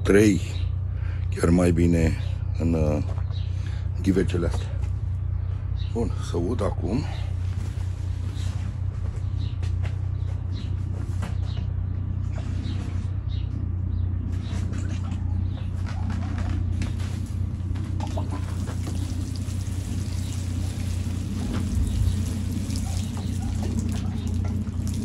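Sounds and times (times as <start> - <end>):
water running into watering can: 18.1 - 25.0.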